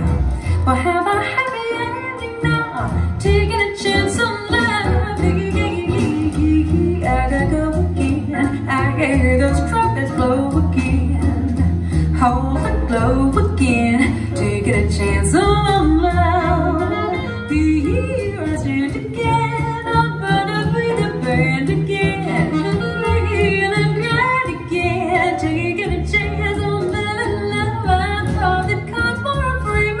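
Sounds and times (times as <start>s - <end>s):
jazz band with bass line: 0.0s - 30.0s
woman singing jazz: 0.0s - 30.0s.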